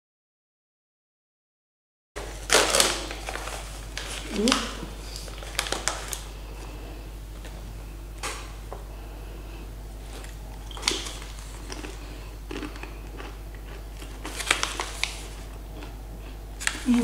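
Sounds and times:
cracker crunching: 2.2s - 7.6s, 10.0s - 17.0s
paper snack bag crinkling: 2.2s - 7.6s, 10.0s - 16.0s, 16.6s - 17.0s
steady low hum: 2.2s - 17.0s.

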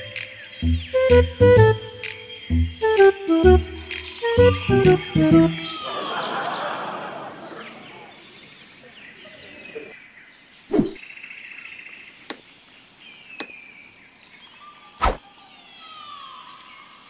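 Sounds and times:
birds calling: 0.0s - 11.0s
sharp clicks: 2.0s - 2.2s
insect drone: 5.6s - 17.0s.

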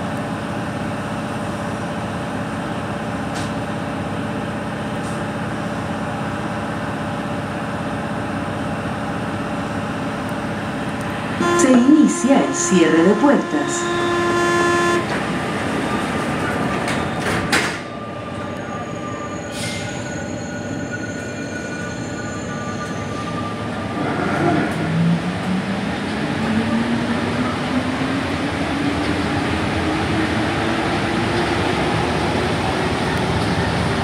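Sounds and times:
train hum: 0.0s - 34.0s
train doors closing with knocks: 12.9s - 20.0s.

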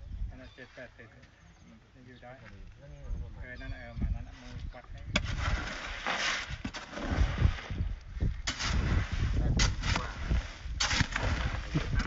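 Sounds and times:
hoe scraping wet concrete: 5.2s - 7.8s, 8.4s - 12.0s.

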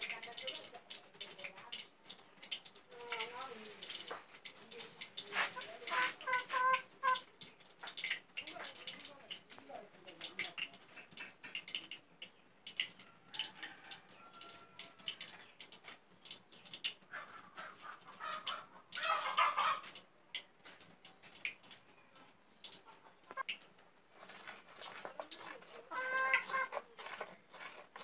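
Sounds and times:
chickens clucking: 5.2s - 8.1s, 16.8s - 20.1s, 22.1s - 23.6s, 24.2s - 27.8s.

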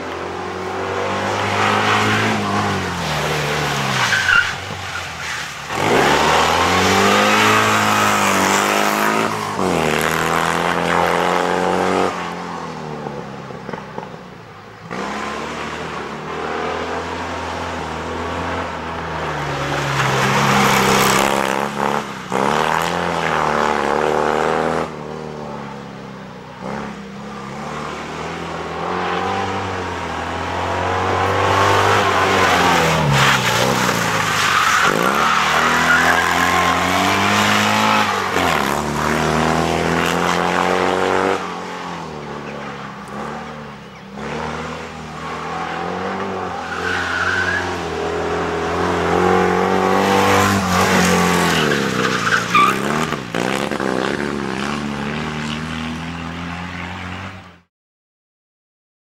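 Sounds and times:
tyre squeal: 1.8s - 8.4s, 31.3s - 38.8s, 45.2s - 48.0s, 49.3s - 53.2s
small car engine revving: 5.7s - 12.1s.

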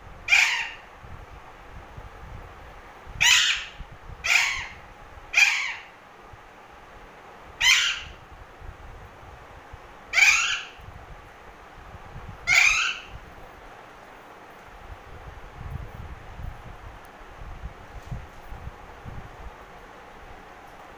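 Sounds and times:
parakeet squawking: 0.3s - 0.8s, 3.2s - 5.9s, 7.6s - 8.2s, 10.1s - 10.8s, 12.5s - 13.1s.

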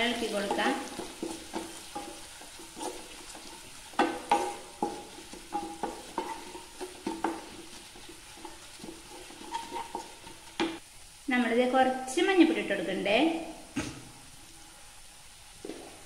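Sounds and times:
wooden spatula scraping a pan: 0.0s - 10.8s
soft frying sizzle: 0.0s - 16.0s.

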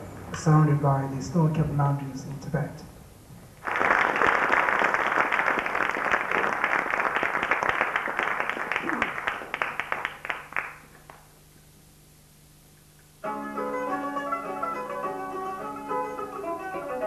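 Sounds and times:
faint low hum: 0.0s - 13.3s
audience applauding: 3.6s - 11.3s.

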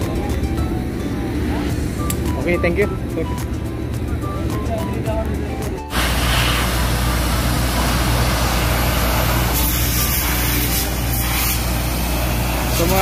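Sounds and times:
machinery engine running: 0.0s - 13.0s
loud even hiss: 5.9s - 13.0s.

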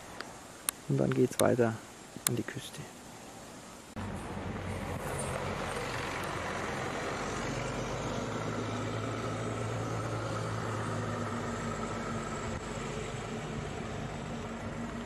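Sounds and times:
steady hiss: 0.0s - 15.0s
vehicle engine idling: 4.0s - 15.0s.

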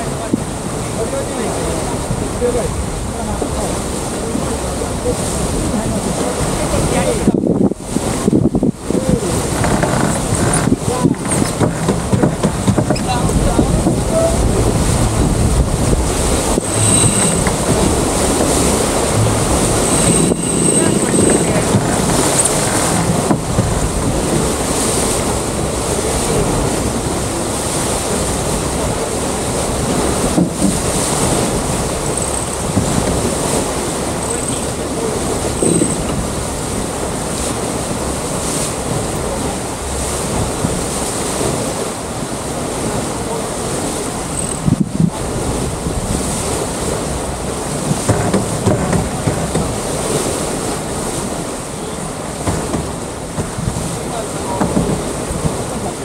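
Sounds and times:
water rushing along hull: 0.0s - 56.0s
wind buffeting microphone: 0.0s - 56.0s
short knocks: 9.5s - 24.0s.

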